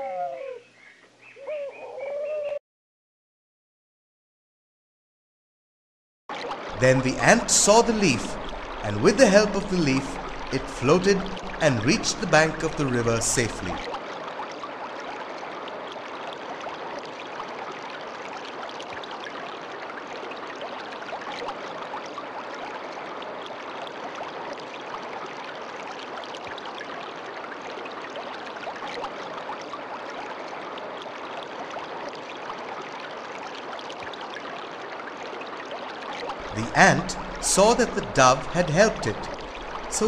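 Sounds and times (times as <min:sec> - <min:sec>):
stream flowing: 0:06.3 - 0:40.0.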